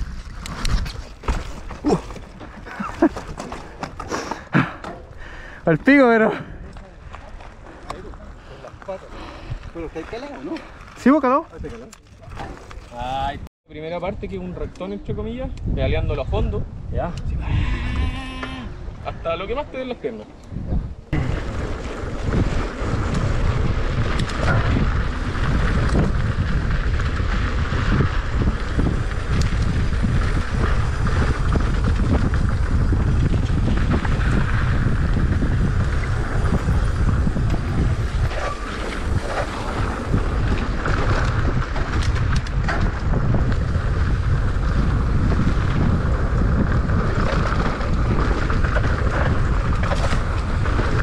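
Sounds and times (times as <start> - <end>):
bike knocking and rattling: 0.0 - 5.3, 21.2 - 51.0
bicycle tyre noise on dirt: 0.0 - 13.4, 20.5 - 51.0
wind buffeting microphone: 0.0 - 51.0.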